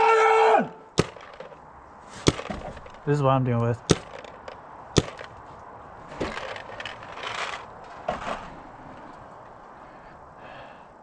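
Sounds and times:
paintball gun crack: 0:03.9 - 0:05.3.

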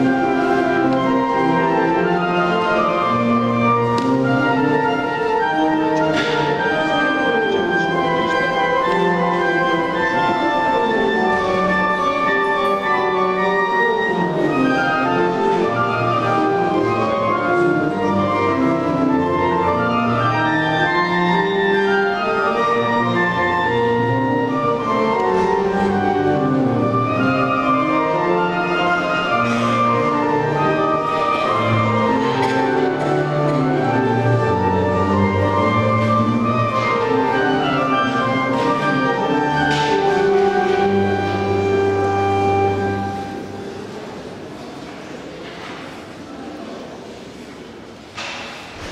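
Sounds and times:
classical ensemble music: 0:00.0 - 0:48.9.

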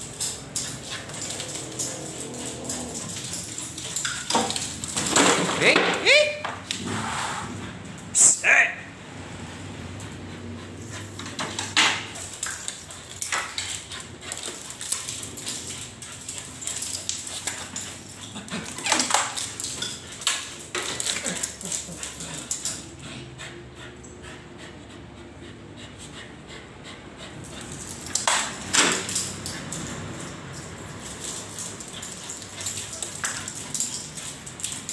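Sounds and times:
dogs whimpering: 0:00.3 - 0:04.6, 0:20.8 - 0:24.6.

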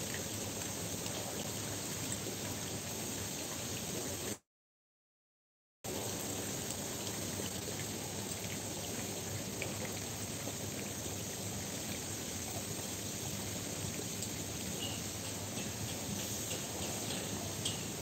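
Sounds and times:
even background hiss: 0:05.9 - 0:18.0.

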